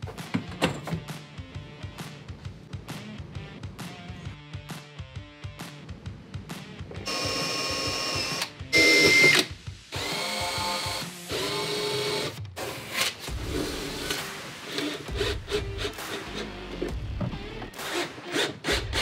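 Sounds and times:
cordless drill whirring: 7.1 - 16.6.

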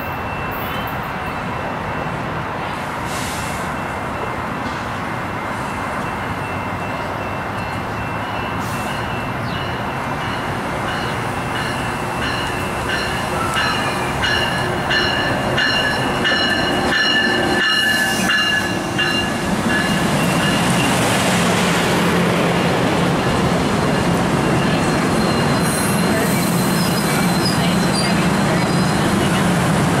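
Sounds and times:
train coaches rumbling: 0.0 - 30.0
train wheels squealing: 24.6 - 29.4.

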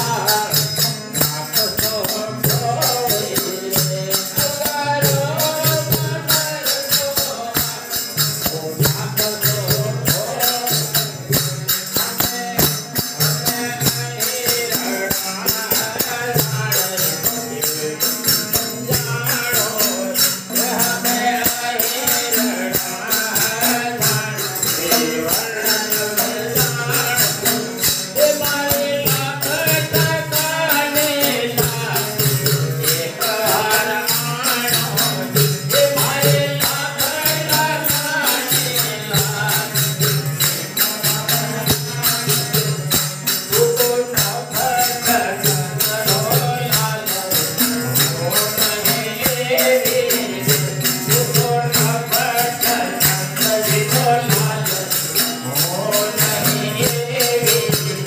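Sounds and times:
hand cymbals jingling: 0.0 - 58.0
person singing into microphone: 0.0 - 58.0
tabla: 0.0 - 58.0.

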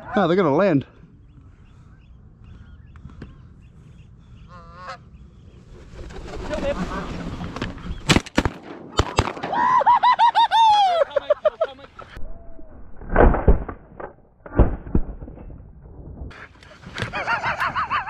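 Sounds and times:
geese honking: 4.3 - 5.5
shotgun blasts: 8.1 - 9.6.

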